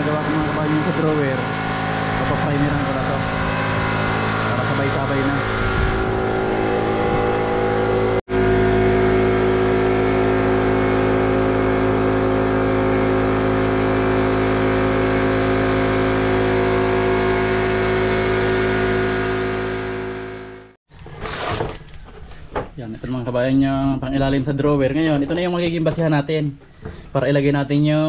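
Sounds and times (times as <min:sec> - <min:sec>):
air compressor running: 0:00.0 - 0:21.6
spray gun hissing: 0:09.2 - 0:20.4.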